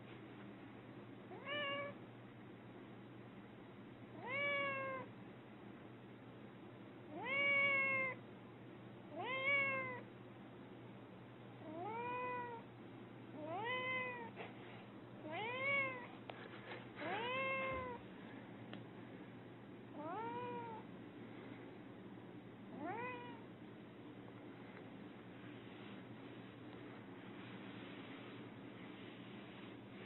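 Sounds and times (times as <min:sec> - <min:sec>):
cat meowing: 0:01.3 - 0:02.0, 0:04.2 - 0:05.1, 0:07.1 - 0:08.2, 0:09.1 - 0:10.0, 0:11.7 - 0:12.6, 0:13.4 - 0:14.3, 0:15.2 - 0:16.1, 0:17.0 - 0:18.0, 0:20.0 - 0:20.8, 0:22.8 - 0:23.4.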